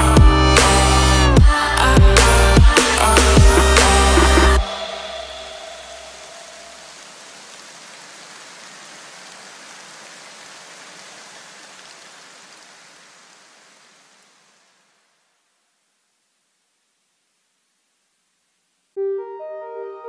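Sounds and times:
rain-like hiss: 2.7s - 19.0s
music tones: 19.0s - 20.0s.

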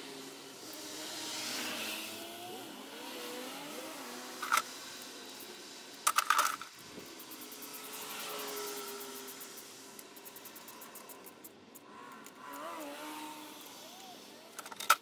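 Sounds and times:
metal tools and bolts clinking: 6.0s - 6.7s, 14.5s - 15.0s.

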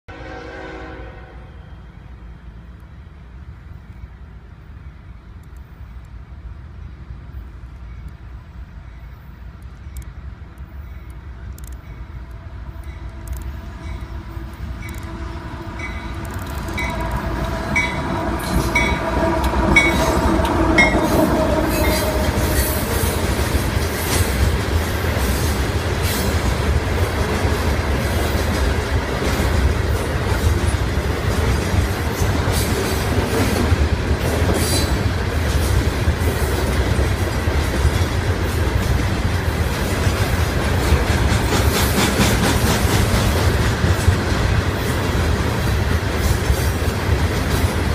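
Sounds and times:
diesel locomotive passing: 0.1s - 47.9s
freight cars rumbling past: 11.2s - 47.9s.

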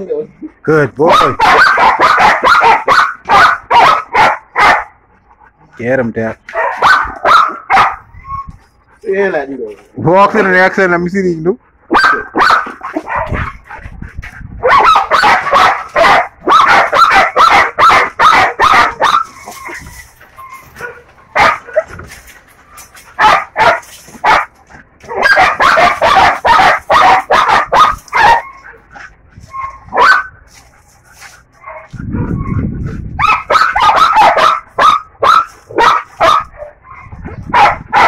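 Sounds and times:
dog barking: 1.1s - 5.0s, 6.5s - 8.1s, 11.9s - 13.6s, 14.6s - 19.3s, 20.8s - 21.9s, 23.2s - 28.5s, 29.9s - 30.4s, 33.2s - 38.0s.

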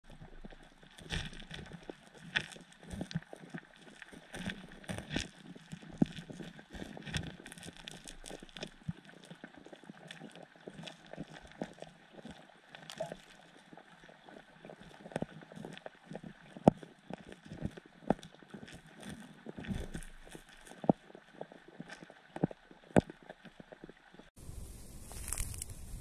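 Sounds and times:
fish feeding clicks on gravel: 25.1s - 25.8s.

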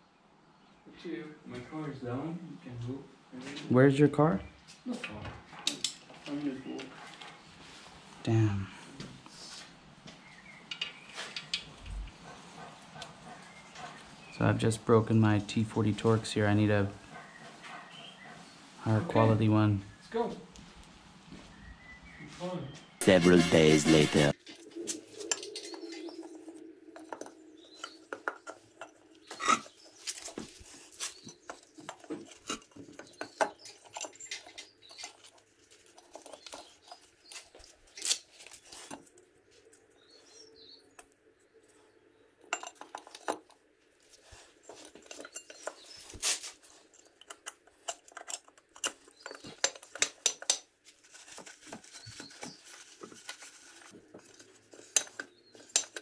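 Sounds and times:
light metallic clinks and clicks: 44.6s - 50.7s.

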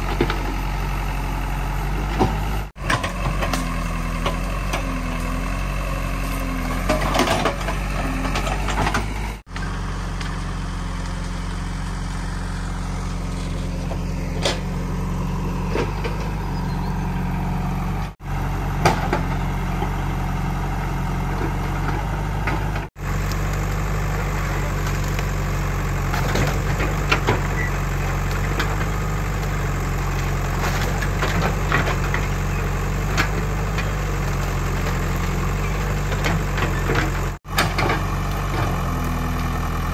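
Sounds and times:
diesel engine running: 0.0s - 39.9s
wood cracking and snapping: 23.0s - 27.4s.

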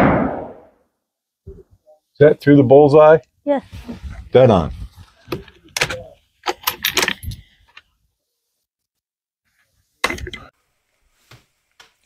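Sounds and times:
loose cartridges clinking: 5.7s - 7.4s.

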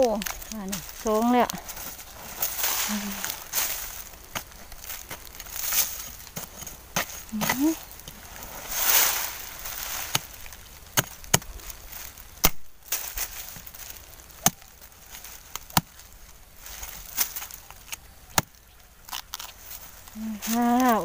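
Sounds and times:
machete chopping into soil: 2.4s - 7.8s, 8.7s - 10.4s, 11.0s - 11.5s, 12.4s - 13.8s, 14.4s - 14.7s, 15.5s - 16.0s.

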